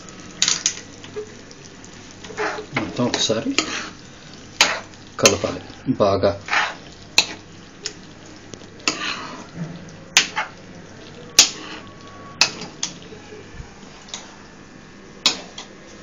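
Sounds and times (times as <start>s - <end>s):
ladle scraping pan: 2.2s - 4.0s, 4.6s - 5.6s, 6.4s - 7.5s, 8.8s - 9.6s, 10.2s - 10.6s, 11.4s - 13.1s.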